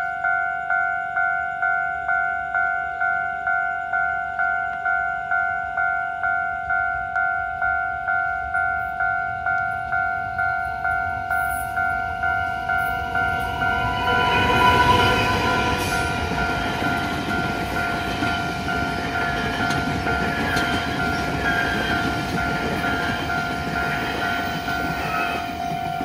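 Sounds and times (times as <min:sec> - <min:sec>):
crossing warning bell ringing: 0:00.0 - 0:26.0
train rumbling past: 0:08.1 - 0:26.0.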